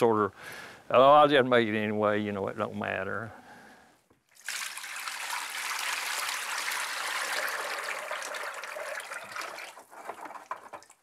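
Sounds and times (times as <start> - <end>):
liquid dripping: 4.3 - 9.8
thick liquid pouring and splashing: 4.3 - 11.0.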